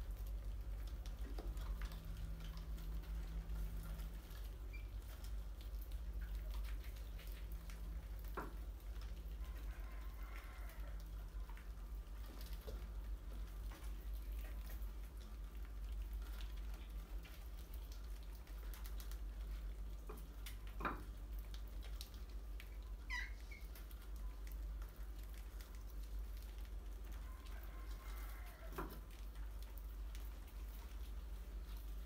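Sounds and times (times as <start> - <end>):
low steady hum: 0.0 - 32.0
rats scrabbling and pattering: 0.0 - 32.0.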